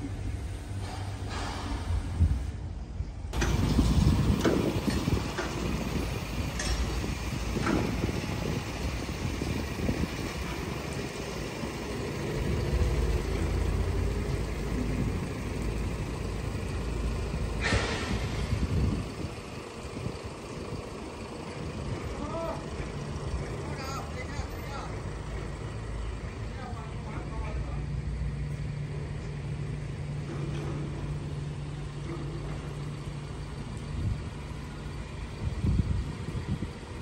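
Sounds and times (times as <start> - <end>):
truck engine idling: 0.0 - 37.0
air release hiss: 17.6 - 18.7.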